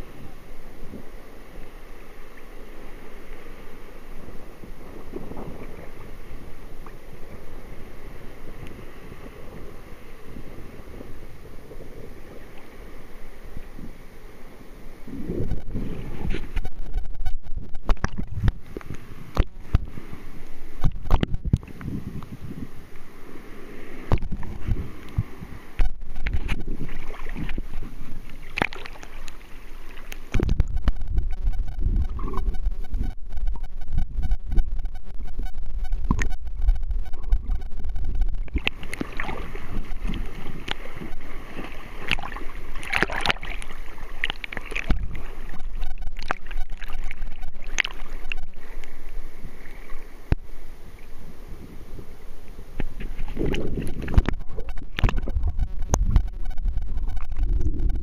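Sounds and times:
muffled underwater rumble: 0:00.0 - 0:58.0
seawater sloshing and splashing: 0:24.1 - 0:30.7, 0:38.4 - 0:50.2.

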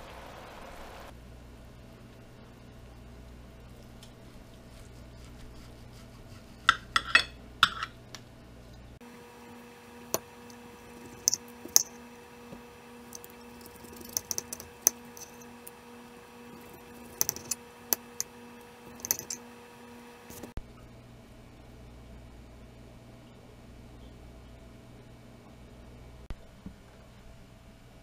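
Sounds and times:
knife and fork scraping plate: 0:06.1 - 0:08.0, 0:13.1 - 0:15.7, 0:16.4 - 0:18.3, 0:18.9 - 0:19.4.

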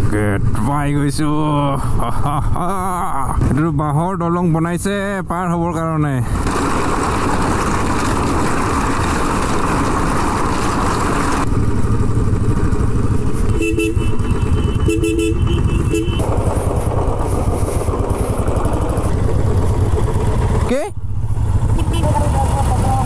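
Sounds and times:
motorcycle engine running: 0:06.4 - 0:23.0
vehicle horn honking: 0:13.5 - 0:16.2, 0:21.7 - 0:22.4.

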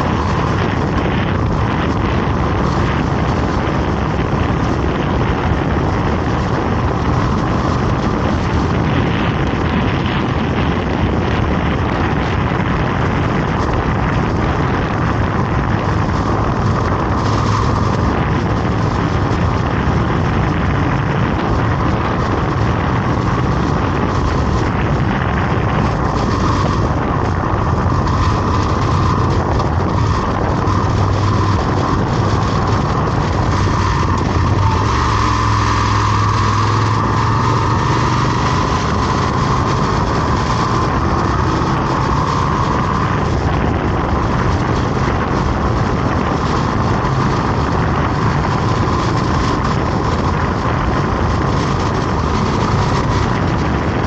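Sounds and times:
vehicle travelling on road: 0:00.0 - 0:54.0.

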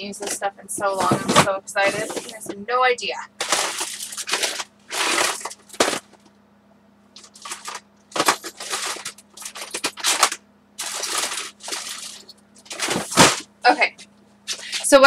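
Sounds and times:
craft supplies rustling: 0:00.2 - 0:02.6, 0:03.4 - 0:06.3, 0:07.2 - 0:13.5.

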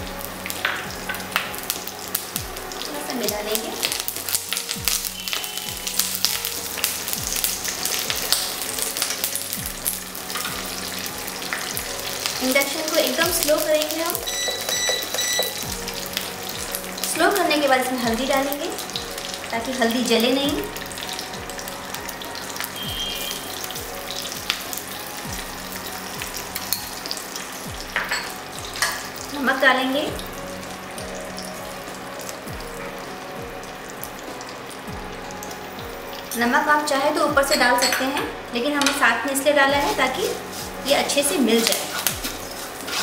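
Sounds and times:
seeds sizzling in hot oil: 0:00.0 - 0:43.0
spatula stirring in a pan: 0:39.8 - 0:43.0.

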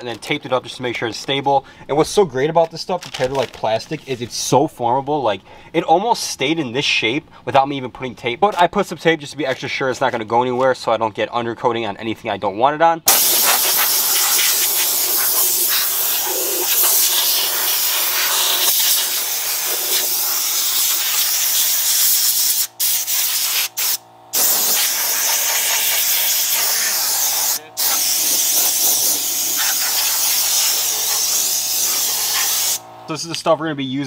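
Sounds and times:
compressed air blow gun hissing: 0:13.1 - 0:32.8.

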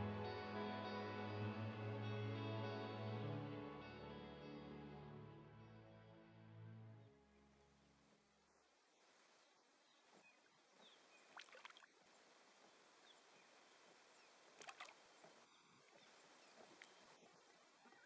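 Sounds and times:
small water splashes: 0:10.4 - 0:12.6, 0:13.9 - 0:18.0.

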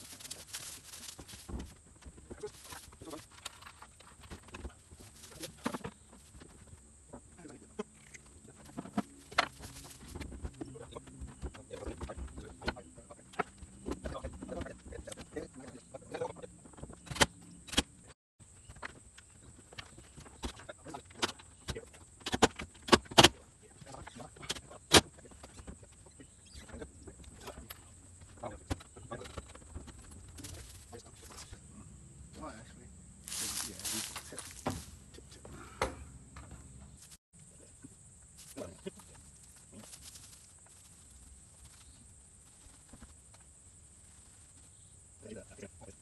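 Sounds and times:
steady high hiss: 0:32.4 - 0:35.0.

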